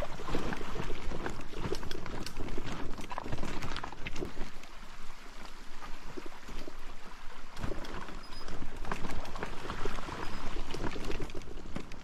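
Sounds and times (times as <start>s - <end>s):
stream trickling: 0.0s - 12.0s.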